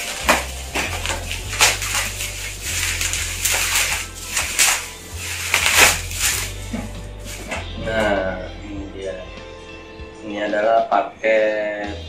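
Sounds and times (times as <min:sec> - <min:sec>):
bubble wrap crinkling: 0:00.0 - 0:08.1.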